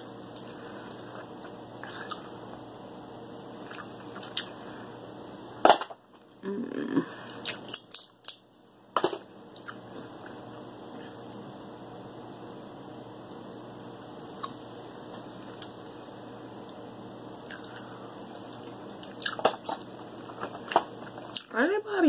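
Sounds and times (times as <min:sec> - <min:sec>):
crab shell cracking: 0:07.5 - 0:08.4.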